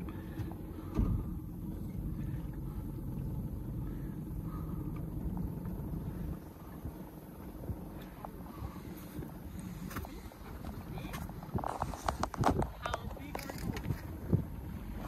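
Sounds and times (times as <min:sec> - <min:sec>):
small boat motor rumbling: 0:00.0 - 0:15.0.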